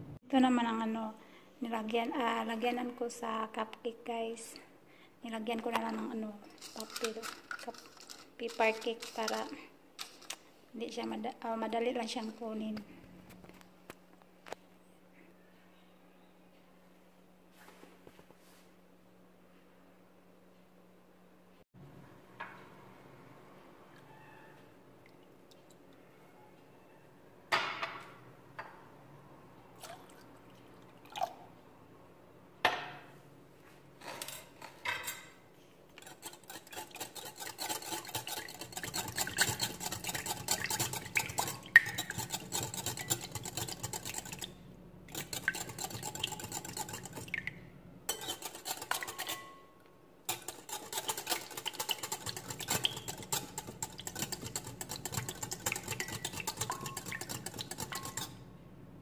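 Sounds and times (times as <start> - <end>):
wire whisk clattering in glass bowl: 6.6 - 10.4, 36.0 - 44.5, 45.1 - 47.4, 48.1 - 49.6, 50.3 - 58.4.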